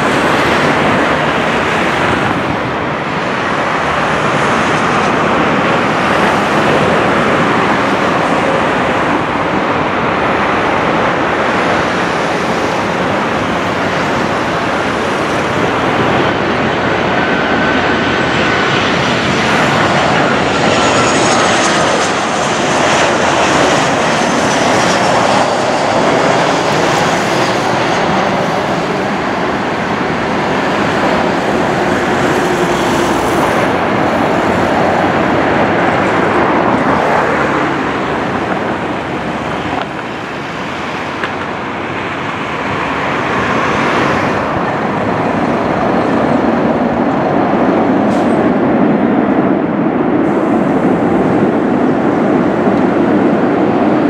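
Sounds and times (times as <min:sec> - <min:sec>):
jet engines rushing: 0:00.0 - 0:54.0.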